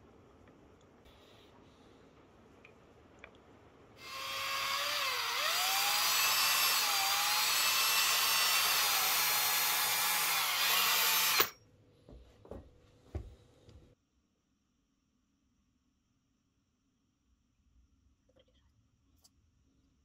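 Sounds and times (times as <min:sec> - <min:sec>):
electric drill mixing: 0:04.0 - 0:11.5.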